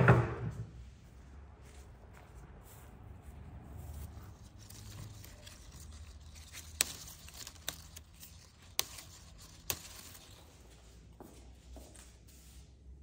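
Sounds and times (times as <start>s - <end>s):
bay leaves snapping: 4.3s - 10.4s.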